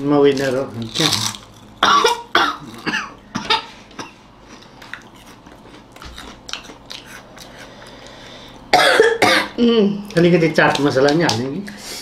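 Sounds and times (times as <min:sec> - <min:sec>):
crunchy chips being chewed: 0:00.3 - 0:02.9, 0:04.4 - 0:08.7
person coughing: 0:01.8 - 0:04.2, 0:08.7 - 0:09.6.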